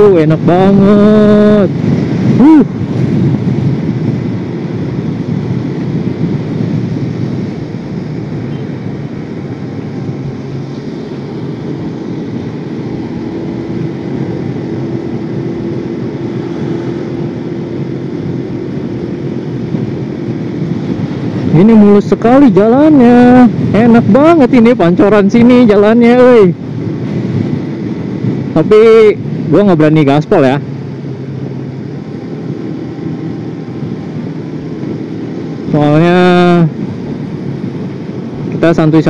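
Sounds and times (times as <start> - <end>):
faint steady engine tone: 0.0 - 39.0
motorcycle engine and road noise: 0.0 - 39.0.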